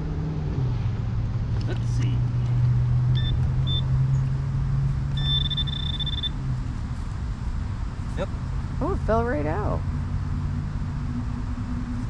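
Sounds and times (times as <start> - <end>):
metal detector beeps: 3.2 - 3.9, 5.2 - 6.4.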